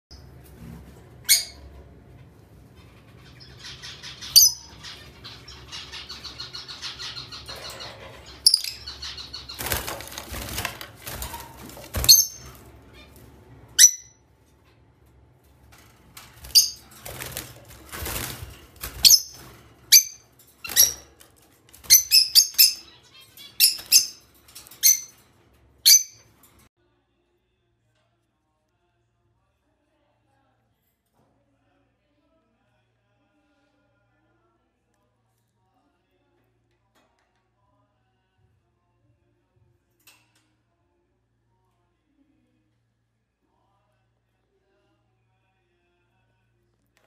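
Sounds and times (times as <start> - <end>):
parakeets screeching: 2.8 - 14.1, 16.4 - 25.2.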